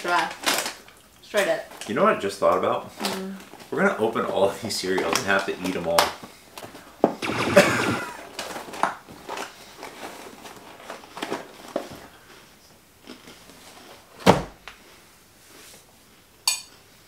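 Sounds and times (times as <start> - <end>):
cereal crunching and rattling in box: 0.0 - 2.0, 7.2 - 12.0.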